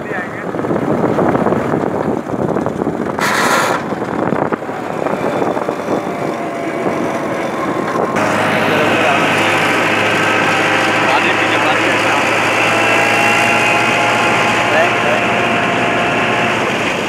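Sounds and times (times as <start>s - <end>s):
tractor engine running: 0.0s - 17.0s
steady low hum: 3.8s - 17.0s.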